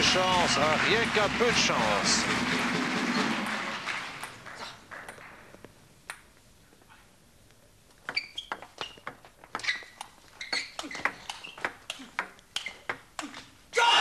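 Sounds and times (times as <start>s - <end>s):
table tennis ball clicking: 5.0s - 6.4s, 8.0s - 13.2s.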